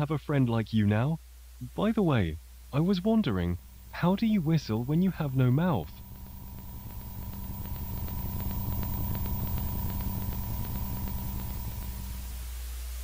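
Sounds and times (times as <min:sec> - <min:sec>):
thin steady tone: 0:03.4 - 0:12.5
faint crackling: 0:03.6 - 0:12.4
low rumbling drone: 0:03.6 - 0:12.4.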